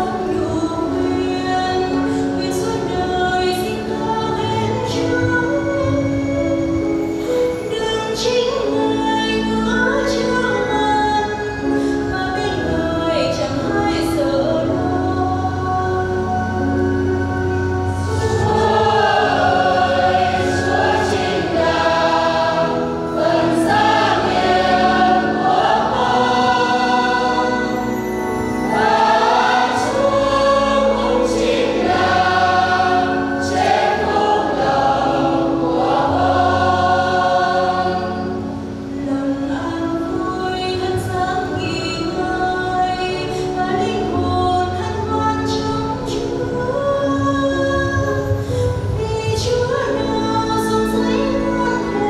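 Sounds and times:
keyboard accompaniment: 0:00.0 - 0:52.0
choir singing a hymn: 0:12.2 - 0:46.9.

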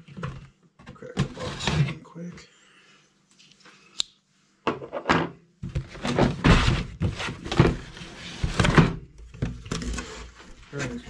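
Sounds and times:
cardboard box thunks: 0:05.6 - 0:09.6
cardboard rubbing and scraping: 0:05.8 - 0:08.9.

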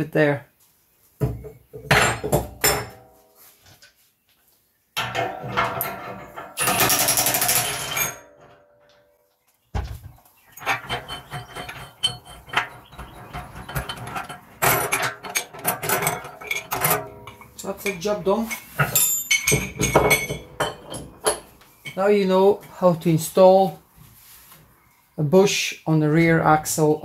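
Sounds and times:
metal parts clinking: 0:05.0 - 0:09.0, 0:10.5 - 0:22.0.

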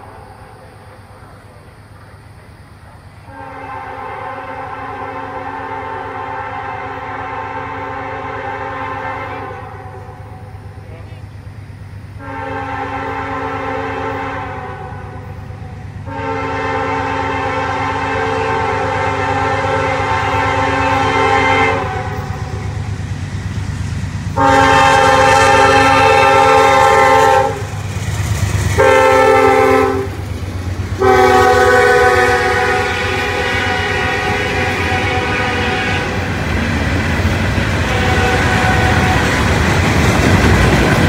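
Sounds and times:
locomotive rumble: 0:00.0 - 0:41.0
locomotive air horn blasts: 0:03.3 - 0:10.5, 0:12.2 - 0:15.4, 0:16.0 - 0:22.6, 0:24.4 - 0:27.8, 0:28.8 - 0:30.1, 0:31.0 - 0:36.3, 0:37.8 - 0:39.4
freight cars rolling on rails: 0:16.8 - 0:41.0.

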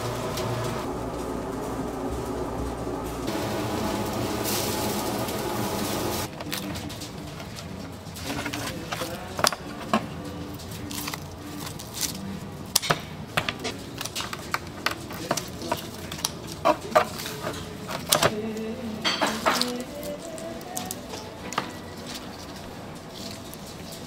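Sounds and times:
metal scissors and tongs clicking on tray: 0:13.9 - 0:24.0.

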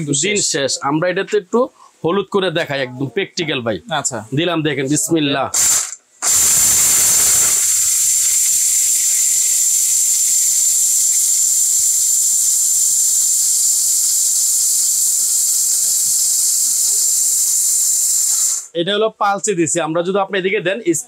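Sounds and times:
blender whining: 0:05.6 - 0:18.7.

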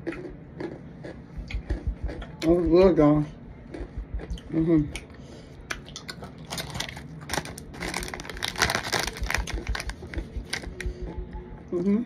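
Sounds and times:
plastic chip bag crinkling: 0:06.3 - 0:10.7.

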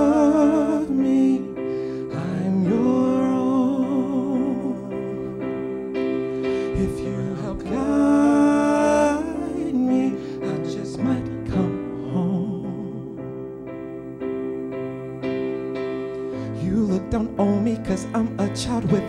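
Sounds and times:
man singing with vibrato: 0:00.0 - 0:05.4, 0:06.5 - 0:13.4, 0:16.4 - 0:19.0
electric keyboard chords: 0:00.0 - 0:19.0.

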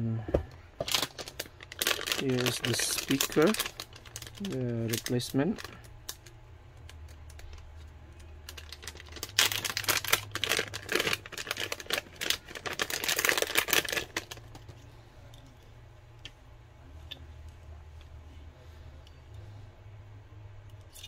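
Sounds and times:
plastic bag crinkling: 0:00.8 - 0:14.7.

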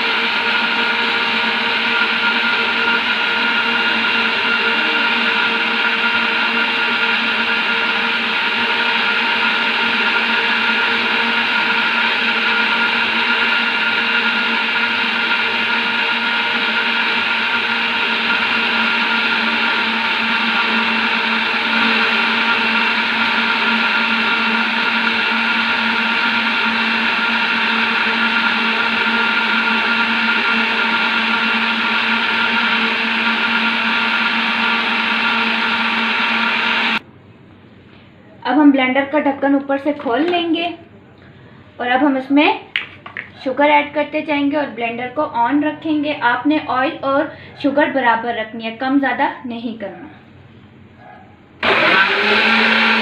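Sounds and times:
blender motor whining: 0:00.0 - 0:37.0, 0:51.6 - 0:53.0.

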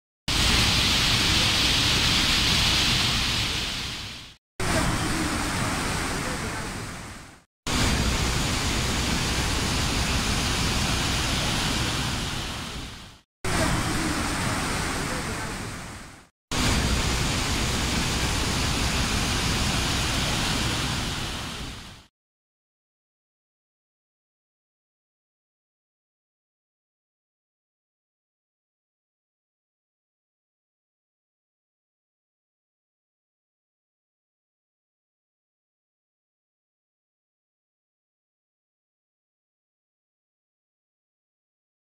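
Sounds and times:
river rushing through rapids: 0:00.3 - 0:22.0.

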